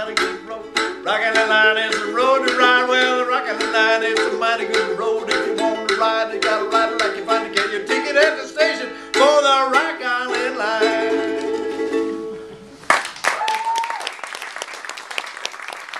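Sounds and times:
harmonica playing: 0.0 - 10.0
strummed ukulele: 0.0 - 12.8.

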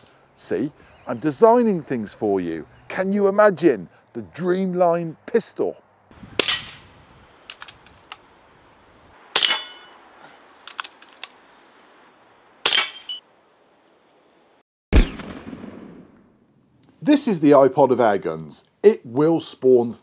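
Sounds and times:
air gun shots: 6.3 - 6.9, 14.9 - 15.9.

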